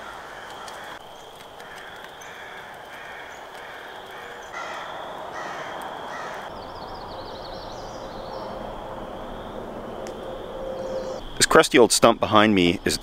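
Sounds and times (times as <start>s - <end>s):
bird cawing: 0.0s - 1.0s, 1.6s - 11.4s
warbling bird song: 0.0s - 13.0s.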